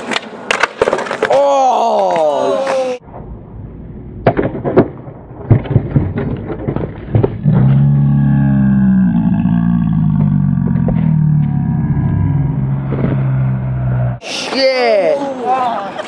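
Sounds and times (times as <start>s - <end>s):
steady low drone: 7.4s - 14.2s.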